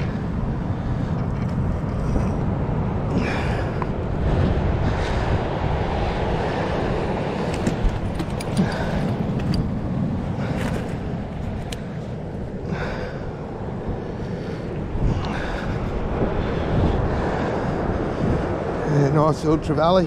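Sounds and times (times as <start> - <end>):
surf washing on rocky shore: 0.0 - 20.0
wind buffeting microphone: 0.0 - 20.0.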